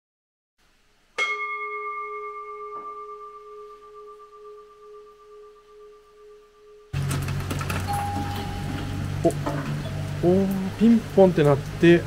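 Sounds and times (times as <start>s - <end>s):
bowl bell ringing: 1.2s - 7.0s, 7.8s - 10.2s.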